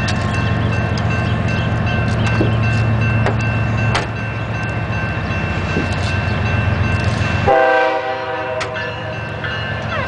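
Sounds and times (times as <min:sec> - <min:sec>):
diesel locomotive rumbling: 0:00.0 - 0:10.0
train air horn chord: 0:07.4 - 0:08.8.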